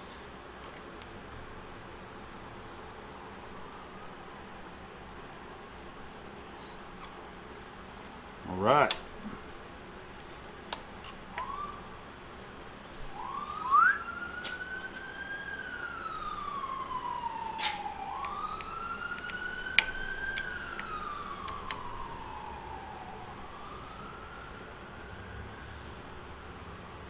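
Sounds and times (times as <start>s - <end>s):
siren wailing: 11.0s - 12.1s, 13.0s - 27.0s
hex key clicking on screws: 18.2s - 21.8s.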